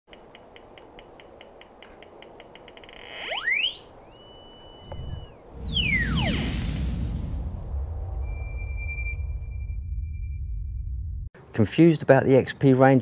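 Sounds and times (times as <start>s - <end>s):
tone sweeping to a high whine: 3.0s - 11.3s
low rumble: 5.4s - 11.3s.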